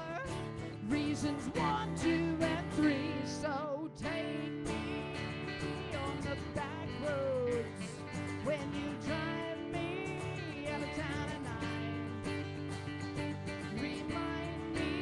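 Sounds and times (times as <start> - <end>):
guitar: 0.0 - 15.0.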